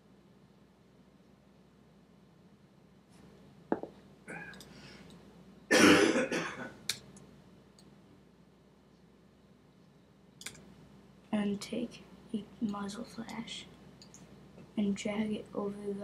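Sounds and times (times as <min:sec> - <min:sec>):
person clearing throat: 0:05.7 - 0:06.7
sharp click: 0:10.4 - 0:10.6.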